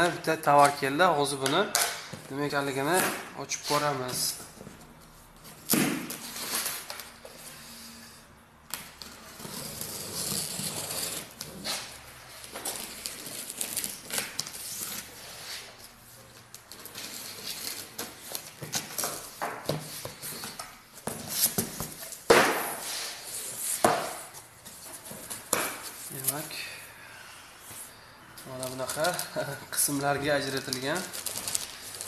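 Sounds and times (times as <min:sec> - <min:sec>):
cardboard rustling and scraping: 0:09.0 - 0:26.6.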